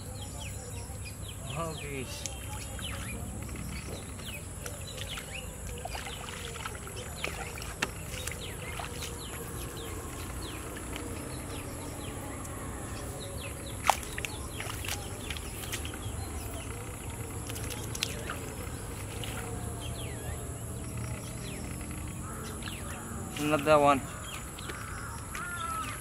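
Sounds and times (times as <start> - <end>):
insect chirps: 0.1 - 26.0
splashing in muddy water: 2.1 - 26.0
insect drone: 8.0 - 23.4.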